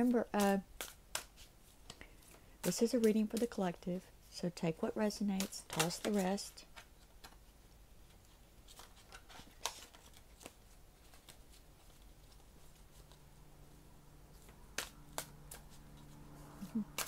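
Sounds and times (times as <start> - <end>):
cards being shuffled by hand: 0.0 - 17.0
sharp card snaps: 14.7 - 15.7.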